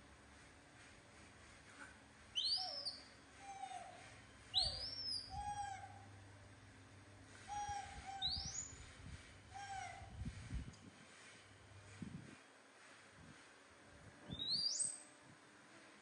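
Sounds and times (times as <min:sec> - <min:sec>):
monkey squeals: 0:07.5 - 0:08.7.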